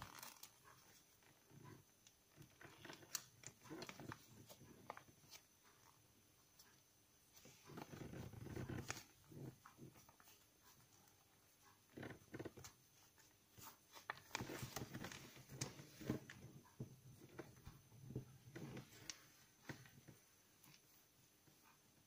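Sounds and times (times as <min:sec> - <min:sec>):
paper rustling and crinkling: 0:00.0 - 0:01.0, 0:12.4 - 0:16.4.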